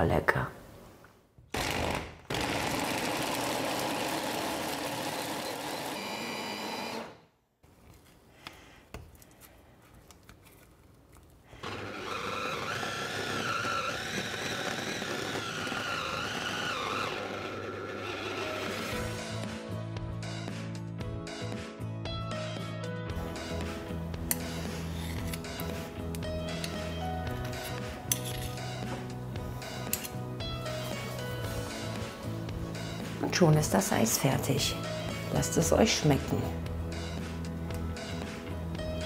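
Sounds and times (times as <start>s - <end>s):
music: 17.3s - 39.0s.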